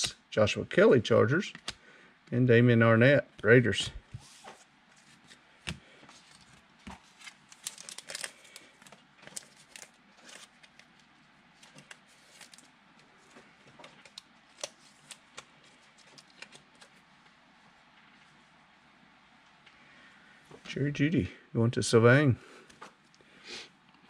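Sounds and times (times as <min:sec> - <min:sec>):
trading cards flicking and rustling: 0:01.5 - 0:01.8, 0:04.0 - 0:17.1.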